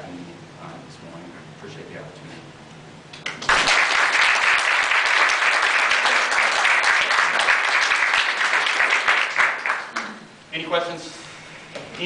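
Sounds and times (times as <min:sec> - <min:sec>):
people applauding: 0:03.2 - 0:10.3.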